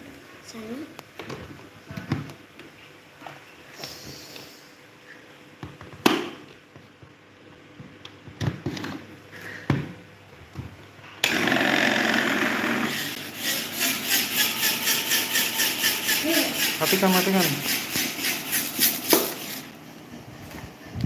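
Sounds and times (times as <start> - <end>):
electric fan whirring: 5.7 - 21.0.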